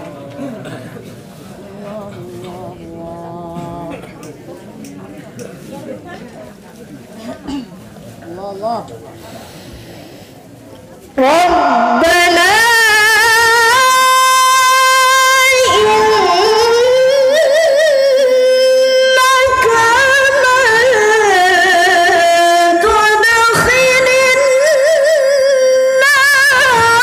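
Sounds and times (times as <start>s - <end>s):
woman reciting into a microphone: 0.0s - 4.5s, 11.1s - 27.0s.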